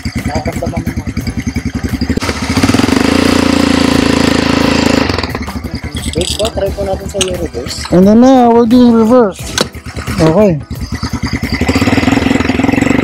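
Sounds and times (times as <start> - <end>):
quad bike engine revving: 0.0 - 13.0.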